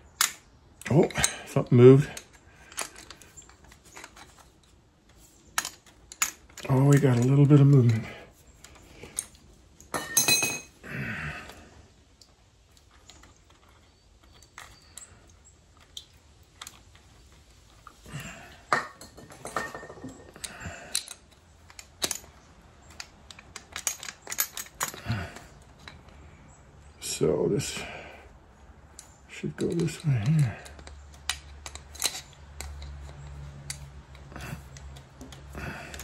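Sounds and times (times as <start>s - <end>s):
metal tools clicking and clinking: 0.1s - 10.8s, 17.8s - 26.2s, 28.9s - 36.0s.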